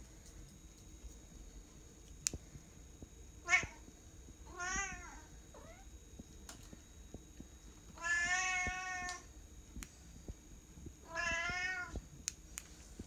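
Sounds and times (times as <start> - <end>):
cat meowing: 8.0 - 9.2, 11.1 - 12.0.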